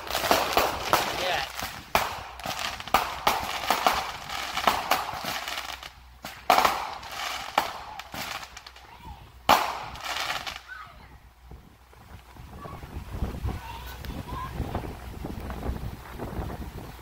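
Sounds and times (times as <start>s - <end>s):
loud firework bursts: 0.0s - 16.6s
fireworks crackling and popping: 0.0s - 17.0s.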